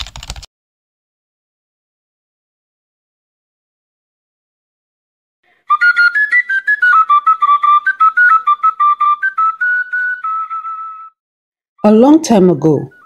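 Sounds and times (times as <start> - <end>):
high whistle melody: 5.6 - 11.2, 12.8 - 13.0.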